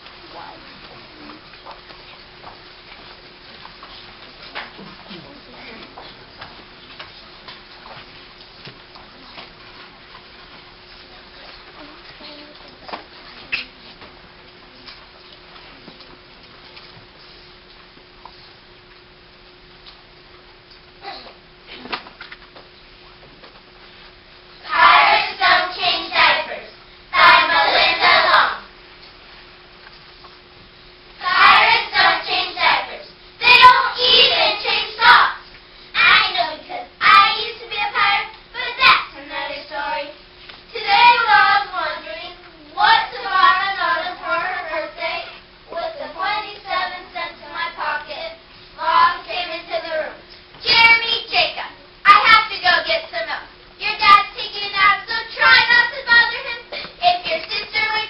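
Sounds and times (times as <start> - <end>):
children reciting together: 24.6 - 28.7, 31.2 - 35.4, 36.0 - 53.2, 53.8 - 58.0.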